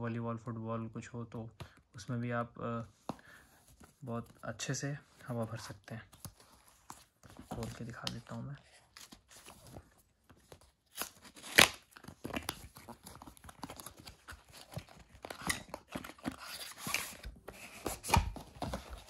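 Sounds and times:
paperboard packaging rustling: 5.4s - 19.0s.

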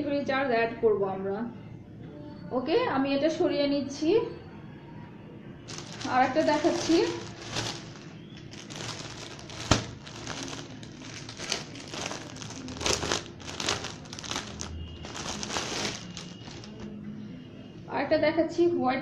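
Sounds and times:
fabric rustling and crinkling: 5.7s - 17.0s.

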